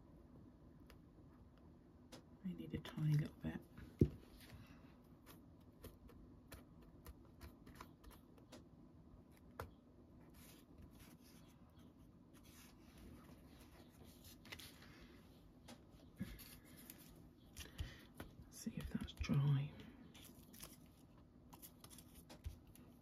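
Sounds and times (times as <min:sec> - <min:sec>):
paper taps and rustles: 0:21.5 - 0:22.8.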